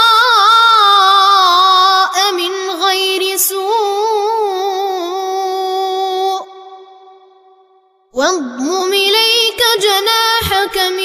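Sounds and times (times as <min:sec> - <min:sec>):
boy chanting recitation: 0:00.0 - 0:06.6, 0:08.2 - 0:11.0.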